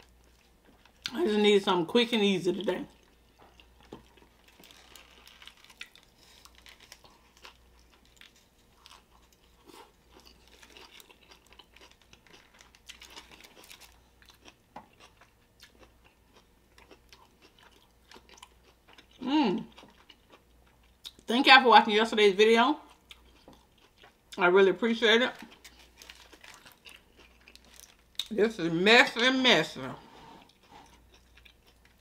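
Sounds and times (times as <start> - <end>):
close-miked chewing: 2.9 - 21.3, 22.8 - 24.4, 25.4 - 28.3, 30.4 - 32.0.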